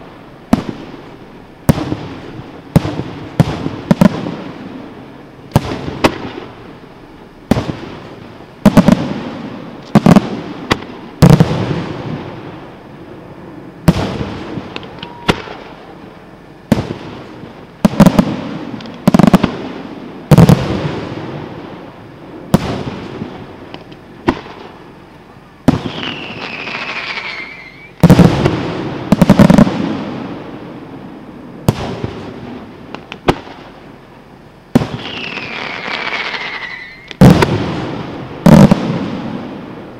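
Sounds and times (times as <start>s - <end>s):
fireworks booming: 0.0s - 39.9s
falling whistle: 14.9s - 15.6s, 25.9s - 28.0s, 35.1s - 37.2s.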